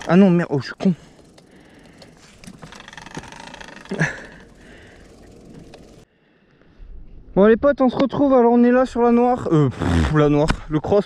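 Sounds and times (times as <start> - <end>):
bike rattling on rocky ground: 0.0 - 6.0.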